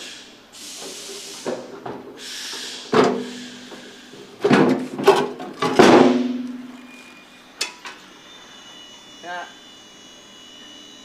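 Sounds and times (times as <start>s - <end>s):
metal clanks: 4.4s - 6.8s.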